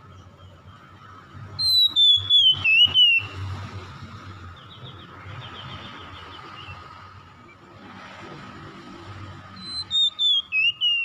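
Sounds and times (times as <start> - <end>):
bird whistling song: 1.6 - 3.4, 9.6 - 11.0.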